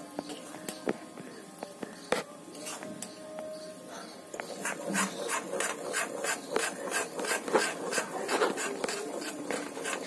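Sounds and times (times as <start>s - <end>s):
spatula scraping a pan: 4.6s - 10.0s.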